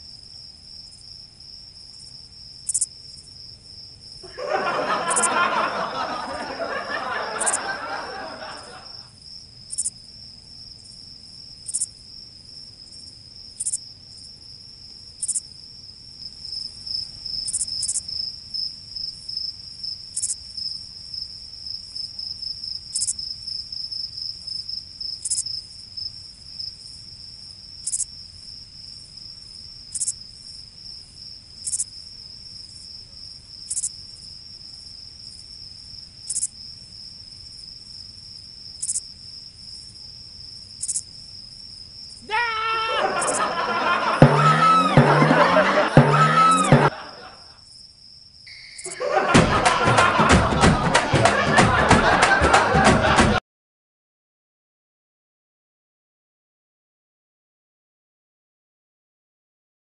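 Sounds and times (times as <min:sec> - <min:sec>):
crickets trilling: 0:00.0 - 0:44.3, 0:46.9 - 0:49.2
sharp higher chirp: 0:48.5 - 0:49.0.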